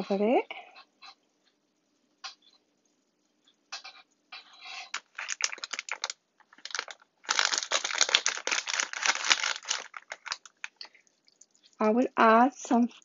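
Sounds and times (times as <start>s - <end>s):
thick filling bubbling and popping: 4.9s - 13.0s.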